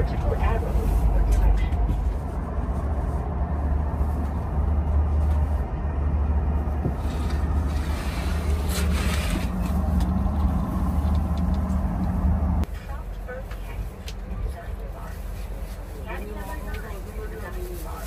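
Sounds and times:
train interior rumble: 0.0 - 18.0
fabric curtain rustling: 7.0 - 9.9.

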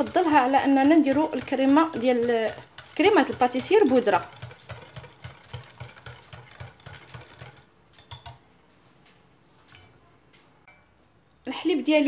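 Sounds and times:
whisk tapping glass bowl: 0.0 - 8.4.

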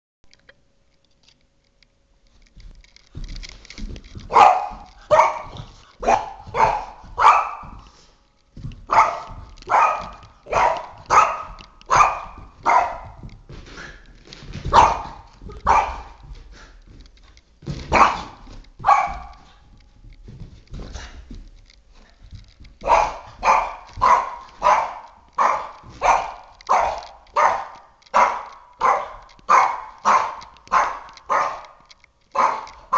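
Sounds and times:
dog barking sharply: 8.9 - 13.2, 22.8 - 31.7.

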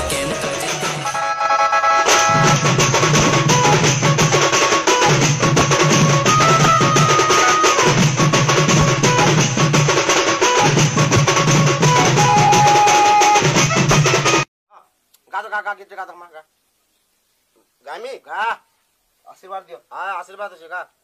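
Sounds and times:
fast dense drumming: 2.1 - 12.8.

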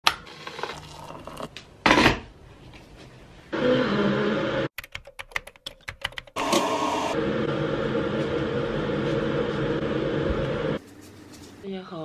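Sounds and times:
typing on a keyboard: 4.8 - 6.4.

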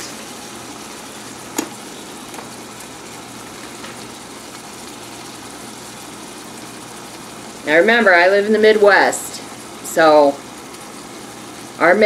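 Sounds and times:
beef sizzling in a pot: 0.0 - 12.0.

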